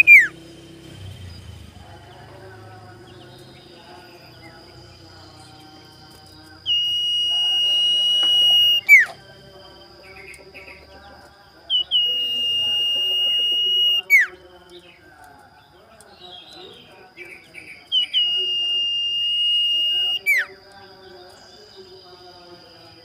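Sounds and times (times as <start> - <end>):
bird whistles: 0.0 - 0.4, 6.6 - 9.2, 11.7 - 14.4, 17.6 - 20.6
faint steady high tone: 2.2 - 14.9, 15.6 - 23.0.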